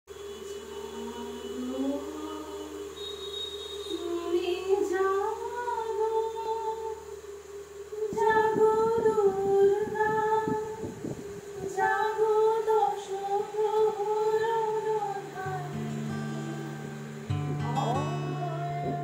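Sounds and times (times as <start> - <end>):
woman singing wordless melody: 0.1 - 3.2, 3.9 - 19.0
low instrument notes: 15.2 - 19.0.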